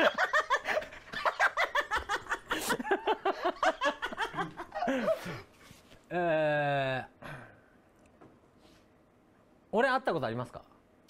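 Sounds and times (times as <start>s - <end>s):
men laughing hard: 0.0s - 5.6s.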